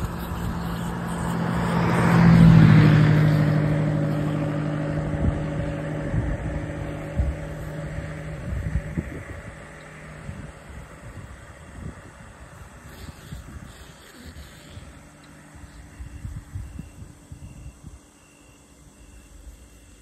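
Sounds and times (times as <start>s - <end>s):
vehicle passing by: 0.0s - 16.0s.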